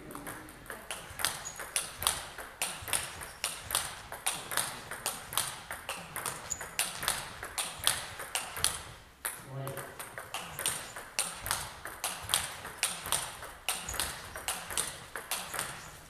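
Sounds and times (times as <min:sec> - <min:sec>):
ping-pong ball clicking: 0:00.0 - 0:16.0.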